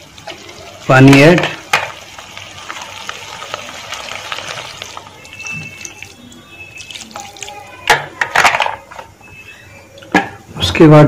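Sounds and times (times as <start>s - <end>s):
water pouring into pan: 0.0s - 8.0s.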